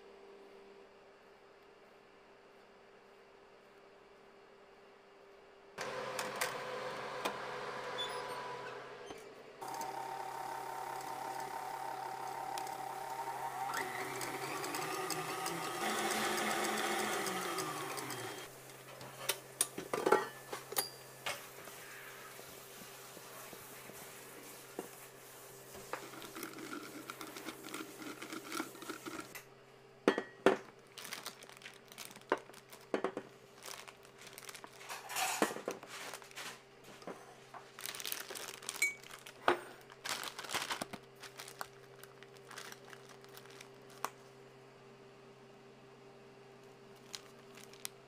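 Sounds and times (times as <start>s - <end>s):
spatula scraping bowl: 25.7s - 29.4s
plastic bag crinkling: 30.8s - 36.6s, 37.6s - 44.3s, 46.9s - 48.0s.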